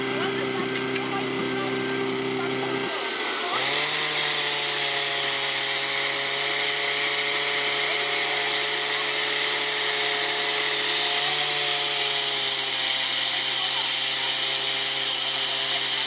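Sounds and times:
pump engine running at high speed: 0.0 - 16.0.

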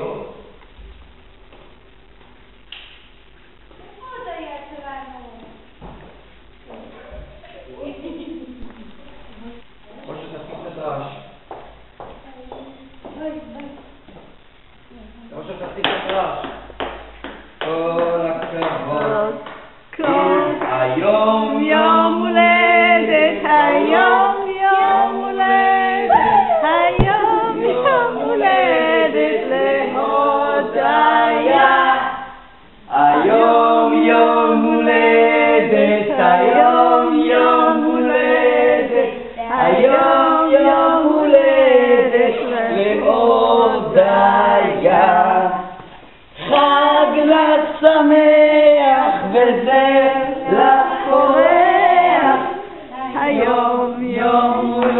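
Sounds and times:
voices singing without instruments: 16.7 - 54.9.

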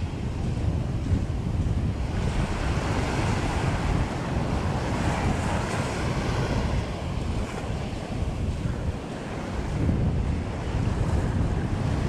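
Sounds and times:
small waves breaking on sand: 0.0 - 12.0
wind rumbling on microphone: 0.0 - 12.0.

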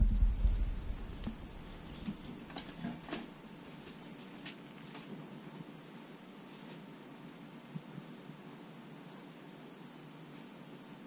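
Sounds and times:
low background rumble: 0.0 - 2.1
distant cicadas droning: 0.0 - 11.0.

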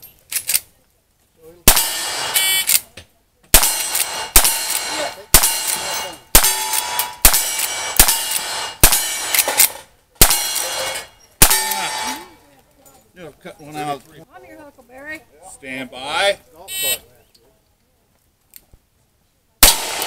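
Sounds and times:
rifle shots: 1.7 - 2.8, 3.5 - 12.2, 19.6 - 20.0
steel target clanging: 3.6 - 12.4.

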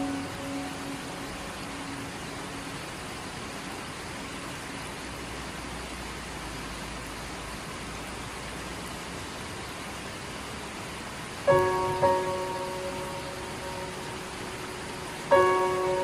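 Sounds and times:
steady rushing noise: 0.0 - 6.2, 10.4 - 16.0.

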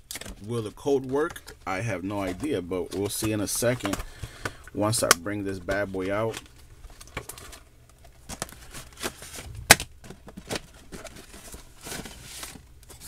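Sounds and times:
packaging rustling: 5.6 - 13.0.

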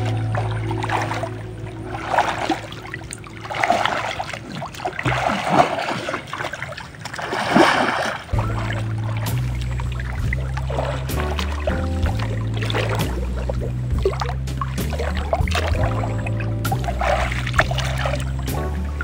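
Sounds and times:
background music low notes: 0.0 - 5.3, 8.3 - 19.0
muddy water splashing: 0.0 - 19.0.

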